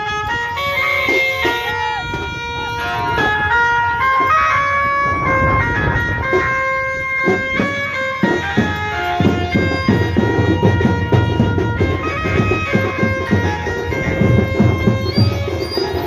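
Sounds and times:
melody of long held notes: 0.0s - 16.0s
drums: 5.1s - 16.0s.

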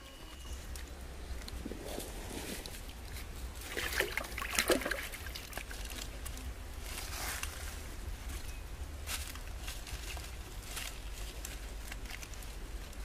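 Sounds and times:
wet leaves squelching: 1.7s - 7.9s.

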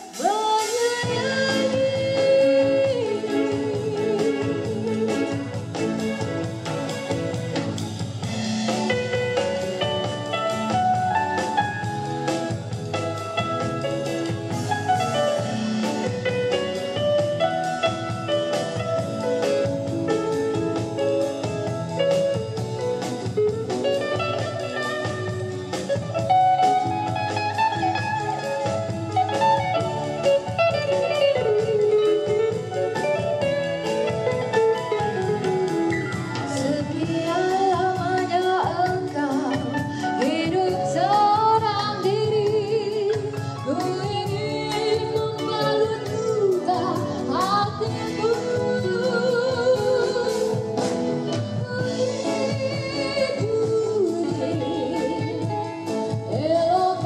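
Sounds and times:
woman singing into a microphone: 0.0s - 5.8s, 23.2s - 57.0s
live rock band playing: 0.0s - 57.0s.

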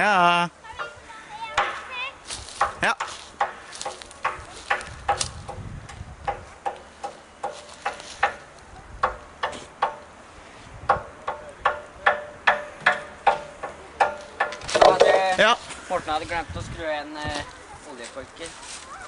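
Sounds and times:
sharp ringing knocks: 0.8s - 1.9s, 6.2s - 10.1s, 10.9s - 15.3s.

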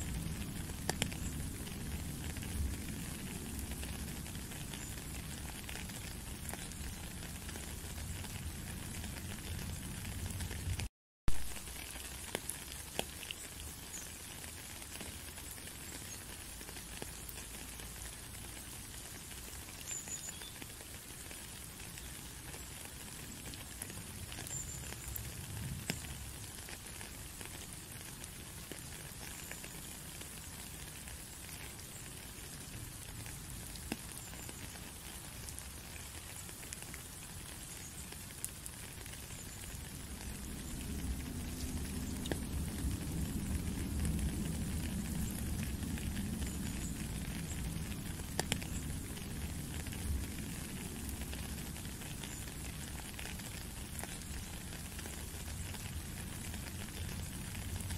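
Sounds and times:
rain on puddle and wet gravel: 0.0s - 57.9s
drip ticks: 0.2s - 1.7s, 39.4s - 50.2s.

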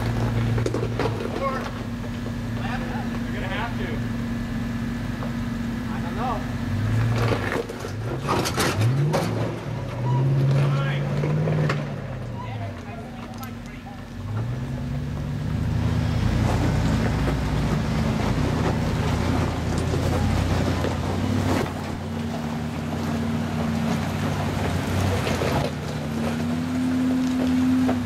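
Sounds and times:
rock cracking under tyres: 0.0s - 2.4s, 16.3s - 28.0s
truck engine under load: 0.0s - 28.0s.

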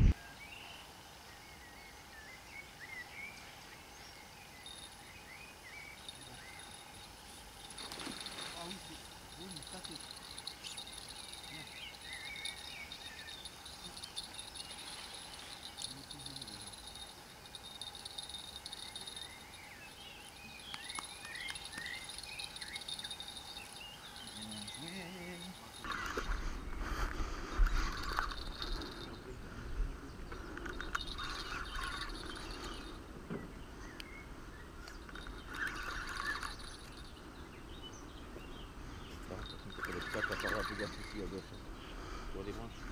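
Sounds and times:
crickets chirring: 4.0s - 33.4s, 34.0s - 42.9s.

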